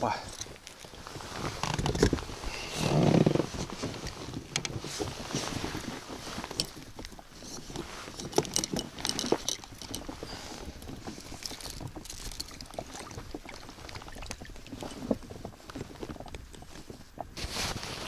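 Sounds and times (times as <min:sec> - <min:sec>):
fishing tackle clicks and rustles: 0:00.0 - 0:18.0
water lapping against boat: 0:00.6 - 0:18.0.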